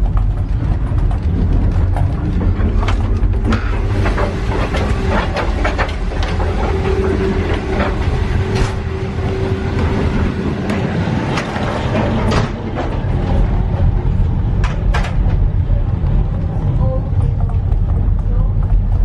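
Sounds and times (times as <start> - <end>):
train carriage rumbling on rails: 0.0 - 19.0.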